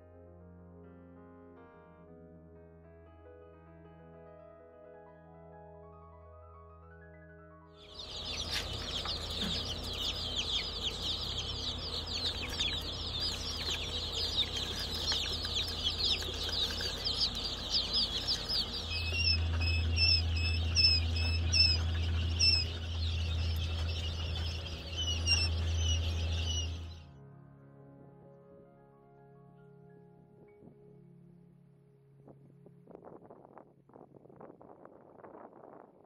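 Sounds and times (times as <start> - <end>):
chicks peeping: 7.8 - 27.0
steady low hum: 7.8 - 27.1.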